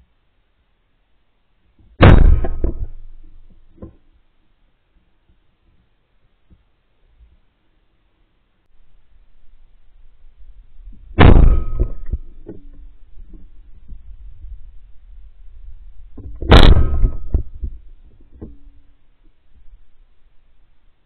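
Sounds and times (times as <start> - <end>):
shotgun shots: 2.0 - 3.3, 11.2 - 12.2, 16.5 - 17.5.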